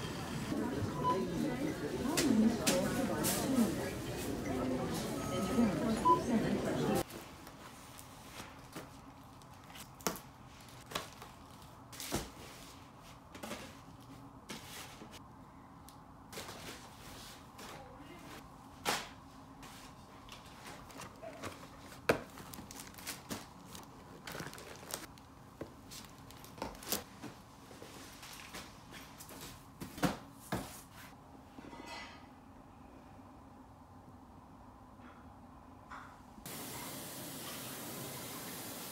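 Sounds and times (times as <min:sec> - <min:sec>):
plastic packaging crinkling: 0:20.8 - 0:25.3.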